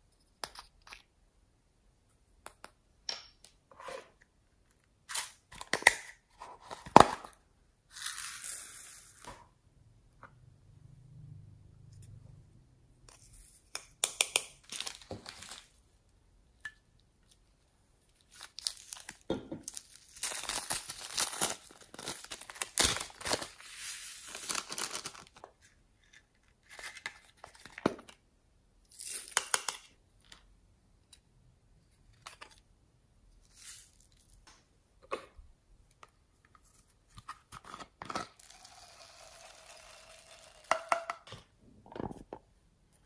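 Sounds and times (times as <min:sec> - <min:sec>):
plastic bags crinkling: 0:18.4 - 0:23.6.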